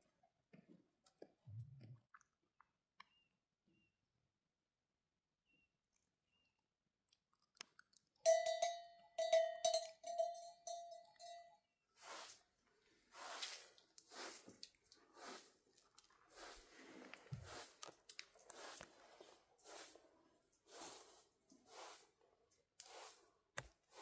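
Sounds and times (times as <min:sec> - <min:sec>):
broom sweeping carpet: 0:12.0 - 0:15.6, 0:16.3 - 0:22.2, 0:22.8 - 0:24.0.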